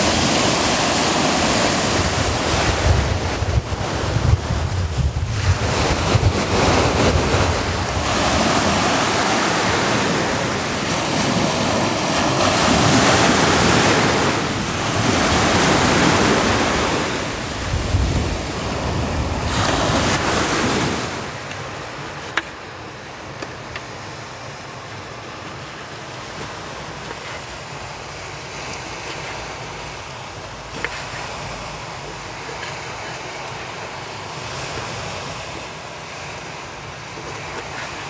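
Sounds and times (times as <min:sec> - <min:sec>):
wind buffeting microphone: 0:00.0 - 0:21.4
ocean surf breaking: 0:00.0 - 0:38.0.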